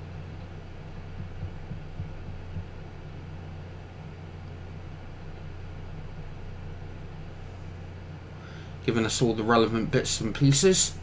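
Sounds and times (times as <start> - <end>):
computer fan whirring: 0.0 - 11.0.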